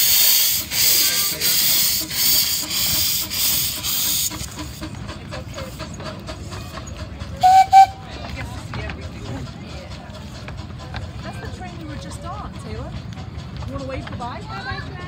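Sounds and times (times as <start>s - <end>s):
steam hissing in pulses: 0.0s - 7.9s
miniature train rolling: 0.0s - 15.0s.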